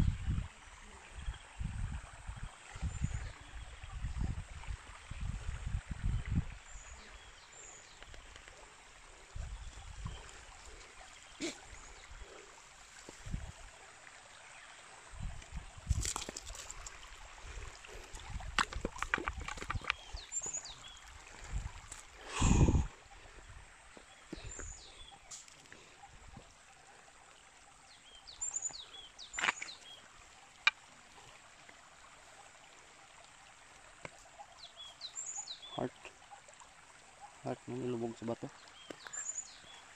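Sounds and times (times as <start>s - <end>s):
stream trickling over rock: 0.0s - 39.9s
footsteps and knocks on stone: 15.4s - 16.9s, 18.1s - 20.6s, 29.3s - 29.8s.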